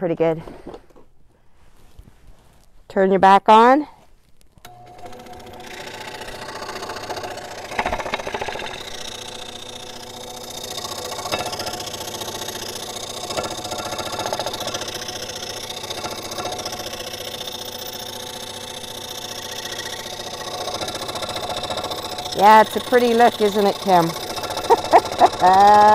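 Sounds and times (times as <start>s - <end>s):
scroll saw cutting wood: 4.6s - 25.9s.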